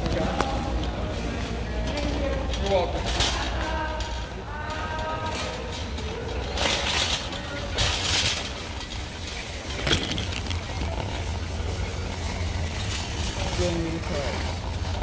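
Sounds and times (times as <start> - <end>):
shopping cart wheels rolling on concrete: 0.0 - 15.0
metal basket rattling: 5.2 - 14.4.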